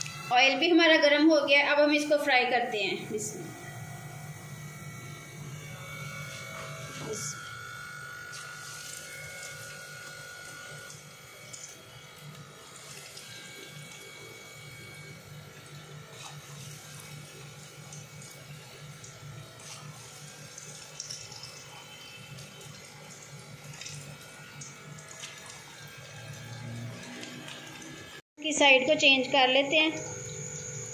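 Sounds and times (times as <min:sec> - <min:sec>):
food sizzling in hot oil: 0:05.8 - 0:28.2.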